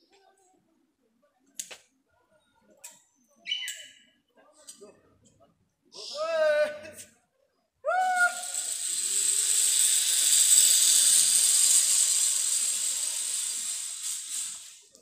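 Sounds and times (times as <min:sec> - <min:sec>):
zip-line trolley whirring: 0:07.9 - 0:15.0.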